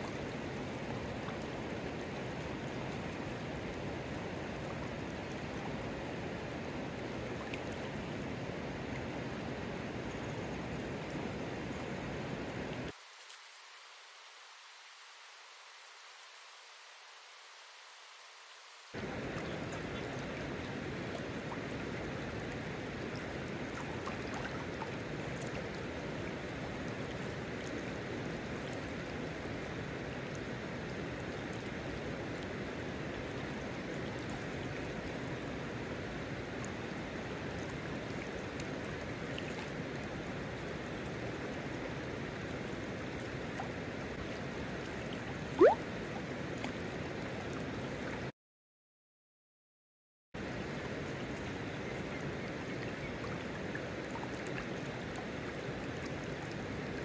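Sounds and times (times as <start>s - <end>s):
river flowing over stones: 0.0s - 13.1s, 19.0s - 48.0s
rising whistle: 45.6s - 45.8s.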